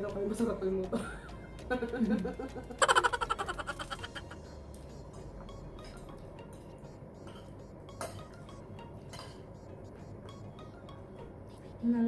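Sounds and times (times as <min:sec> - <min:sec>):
cutlery clinking on plates: 0:05.8 - 0:08.4, 0:09.1 - 0:09.5.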